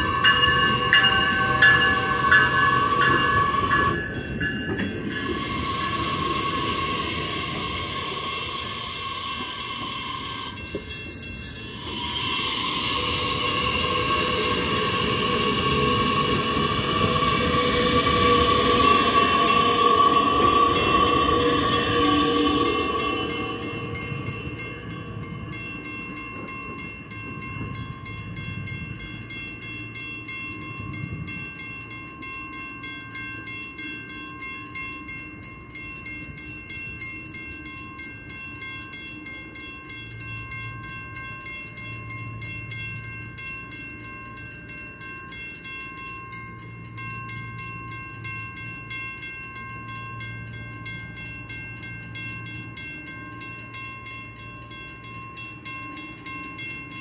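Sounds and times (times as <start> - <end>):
train pulling away: 0.0 - 32.0
crossing warning bell ringing: 0.0 - 57.0.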